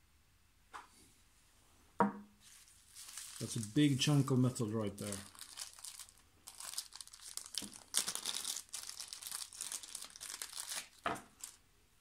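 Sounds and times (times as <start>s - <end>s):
plastic bag crinkling: 2.4s - 11.6s.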